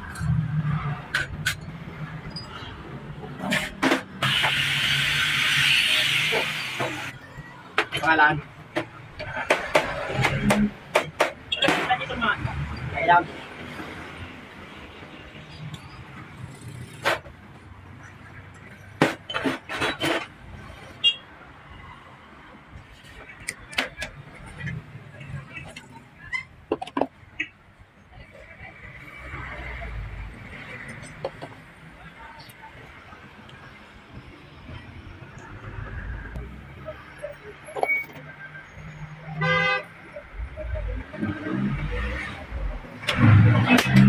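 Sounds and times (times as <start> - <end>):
gas torch hissing: 4.2 - 7.1.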